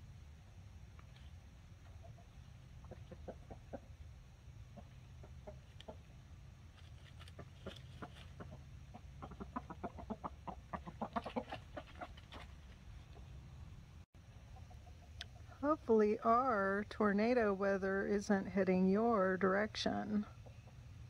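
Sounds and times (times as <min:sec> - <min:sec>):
chickens clucking: 0:01.0 - 0:13.6, 0:14.3 - 0:15.6, 0:20.3 - 0:21.0.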